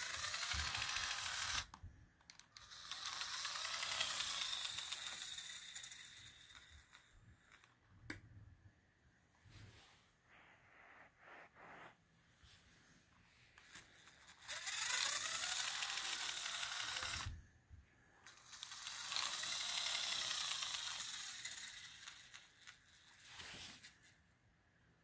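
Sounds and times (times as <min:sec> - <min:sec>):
plastic gears whirring and clicking: 0:00.0 - 0:07.9, 0:13.6 - 0:17.4, 0:18.2 - 0:23.9.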